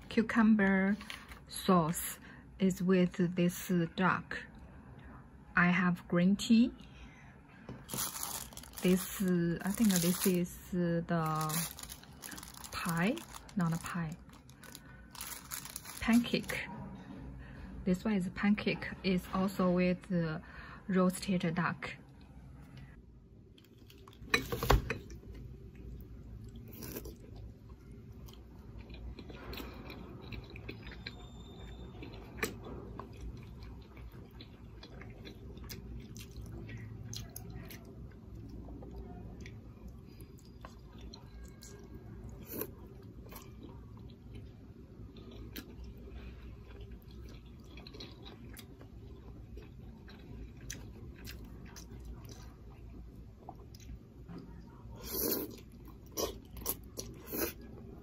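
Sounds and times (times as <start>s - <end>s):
low background hum: 0.0s - 58.0s
quiet chewing: 25.0s - 58.0s.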